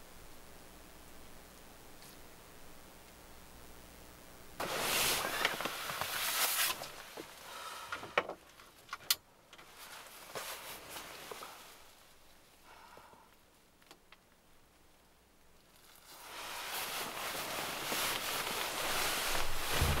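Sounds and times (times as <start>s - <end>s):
fabric rustling in bed: 4.6s - 7.7s, 9.7s - 12.3s, 15.8s - 20.0s.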